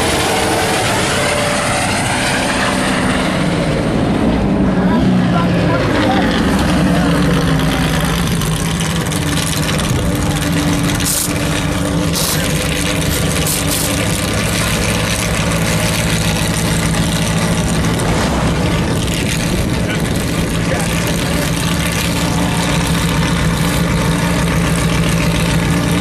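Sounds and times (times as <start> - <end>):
truck engine idling: 0.0 - 26.0.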